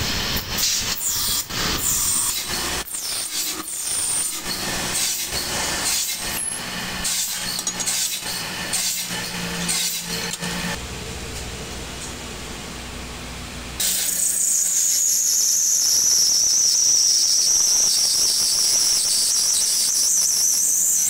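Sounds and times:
rasping tool strokes: 0:00.5 - 0:10.8.

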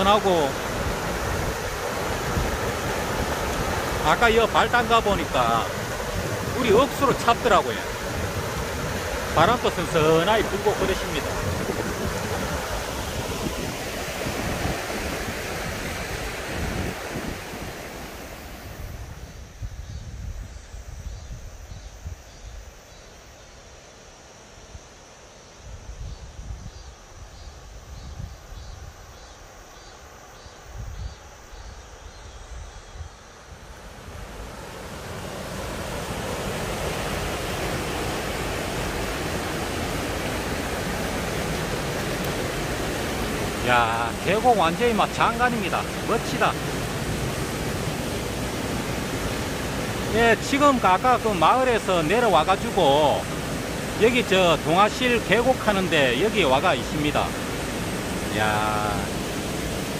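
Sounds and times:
stream rushing over rocks: 0:00.0 - 0:19.1, 0:33.5 - 0:59.9
wind rumbling on microphone: 0:00.0 - 0:22.6, 0:25.6 - 0:29.3, 0:30.4 - 0:51.4
waterfall pouring into pool: 0:43.4 - 0:46.6, 0:49.4 - 0:57.6, 0:58.3 - 0:59.1.

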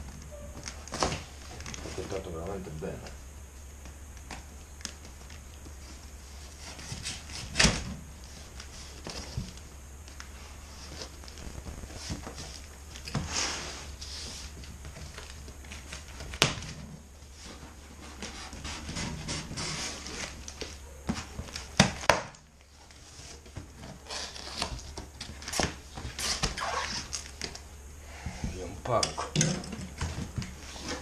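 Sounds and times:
steady low hum: 0:00.0 - 0:31.0
cardboard flaps scraping: 0:05.0 - 0:27.6, 0:29.8 - 0:31.0
sharp cardboard cracks: 0:14.8 - 0:16.8, 0:20.0 - 0:22.7, 0:23.4 - 0:27.6
packing tape cut and pulled: 0:23.9 - 0:27.6.

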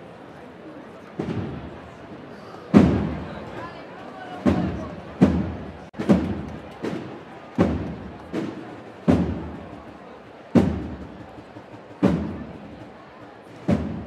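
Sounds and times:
drums beating slow strokes: 0:04.5 - 0:14.0.

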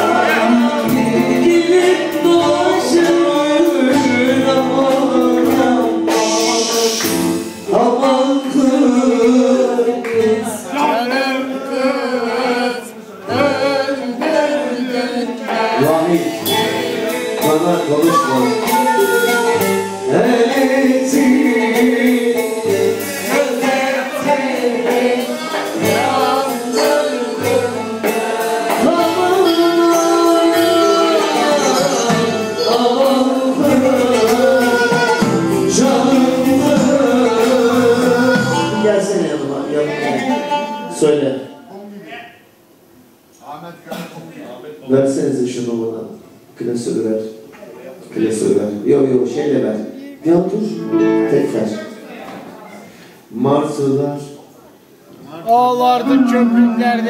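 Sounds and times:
instrumental accompaniment with beat: 0:00.0 - 0:11.2, 0:13.4 - 0:39.0
men singing a song: 0:00.0 - 0:40.8.

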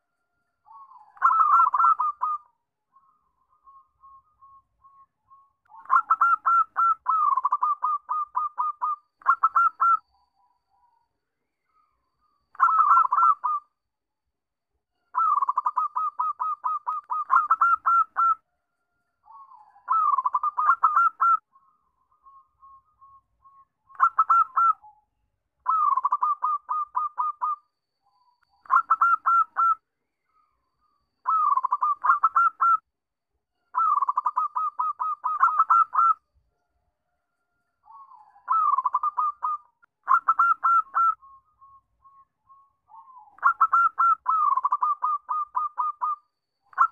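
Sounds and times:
dove cooing: 0:00.7 - 0:02.5, 0:05.7 - 0:10.0, 0:12.6 - 0:13.6, 0:15.2 - 0:18.4, 0:19.3 - 0:21.4, 0:24.0 - 0:24.9, 0:25.6 - 0:27.6, 0:28.7 - 0:29.8, 0:31.2 - 0:32.8, 0:33.8 - 0:36.2, 0:37.9 - 0:41.2, 0:42.9 - 0:46.2.

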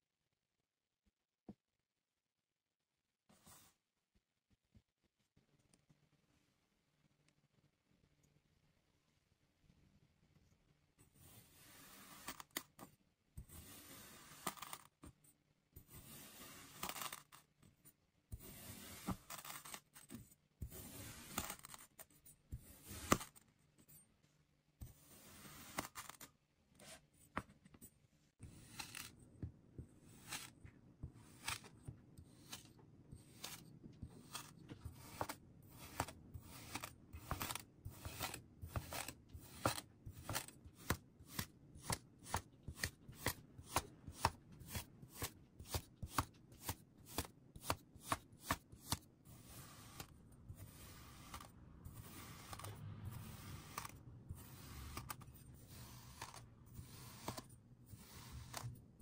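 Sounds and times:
sand being cut and pressed: 0:13.5 - 0:14.9, 0:15.9 - 0:17.4, 0:18.4 - 0:19.8, 0:20.6 - 0:21.8, 0:22.6 - 0:23.4, 0:25.0 - 0:26.2, 0:28.4 - 0:29.2, 0:30.0 - 0:30.6, 0:31.2 - 0:32.7, 0:33.3 - 0:58.8.

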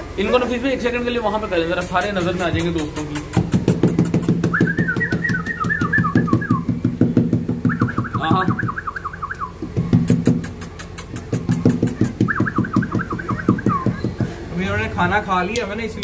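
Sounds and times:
fast drum beat: 0:01.8 - 0:08.8, 0:09.6 - 0:14.4.

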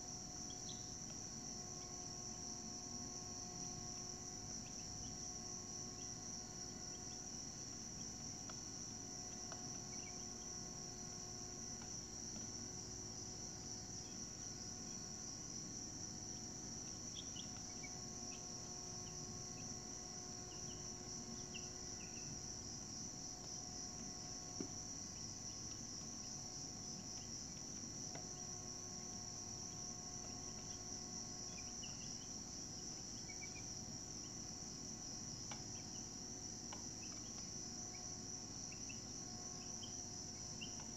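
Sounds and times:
high-pitched insect chorus: 0:00.0 - 0:40.9.

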